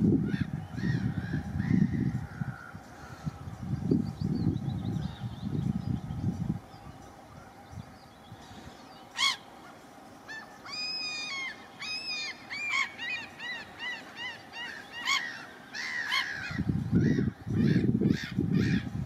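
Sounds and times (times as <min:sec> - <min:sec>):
gulls calling: 0:06.8 - 0:19.0.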